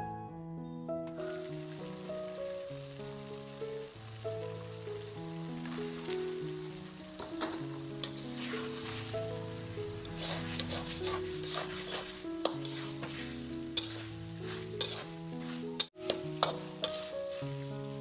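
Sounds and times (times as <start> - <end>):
background music: 0.0 - 18.0
food sizzling in wok: 1.1 - 18.0
metal spatula scraping pan: 7.2 - 18.0.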